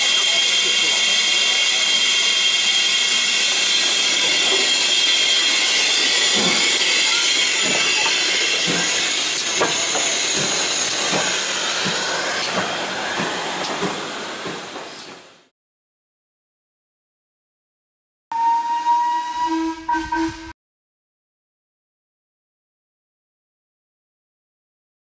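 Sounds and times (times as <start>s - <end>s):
steam locomotive hissing steam: 0.0s - 15.5s.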